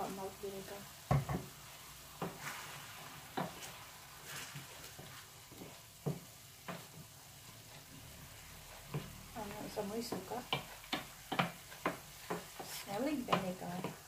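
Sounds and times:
meat sizzling: 0.0s - 14.0s
wooden spoon knocking pan: 1.1s - 1.5s, 2.1s - 2.4s, 3.3s - 3.7s, 5.5s - 7.1s, 8.8s - 14.0s.

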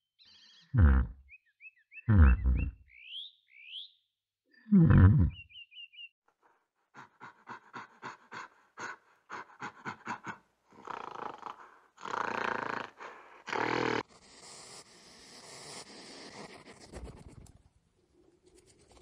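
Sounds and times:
gorilla panting and grunting: 6.4s - 15.0s.

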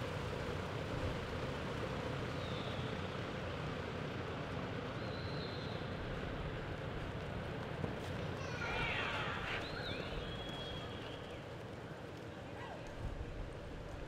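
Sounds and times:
indoor arena background noise: 0.0s - 14.0s.

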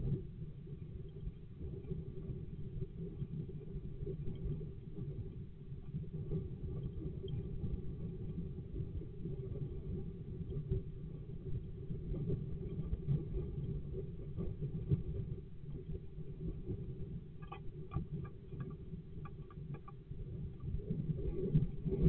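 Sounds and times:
steady low rumble: 13.8s - 22.0s.

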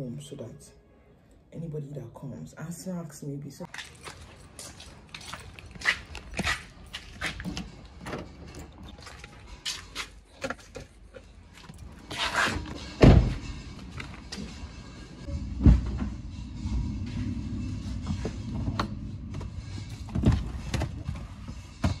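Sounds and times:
low engine hum: 12.9s - 21.7s.

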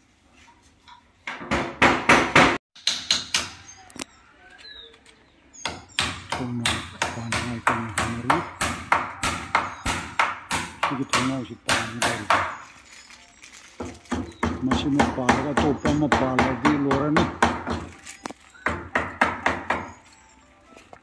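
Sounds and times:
hammer striking window frame: 1.3s - 3.6s, 5.6s - 12.6s, 14.2s - 17.9s, 18.6s - 19.9s.

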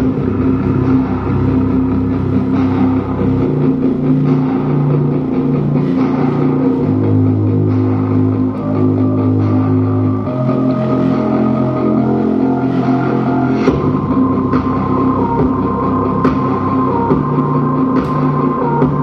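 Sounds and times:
bass-heavy music through subwoofer: 0.0s - 19.0s.

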